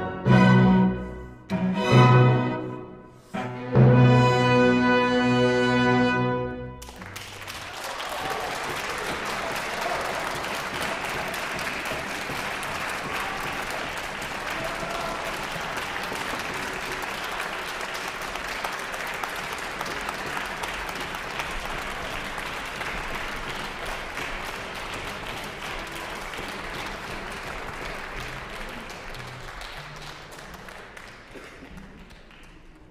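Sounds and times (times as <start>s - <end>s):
audience applauding: 6.8s - 32.9s.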